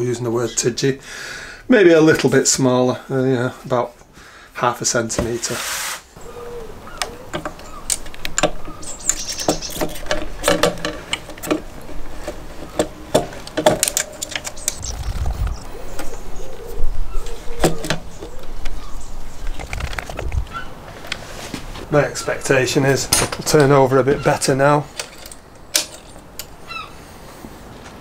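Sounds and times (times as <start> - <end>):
birds chirping: 6.2 - 20.9, 21.8 - 27.4.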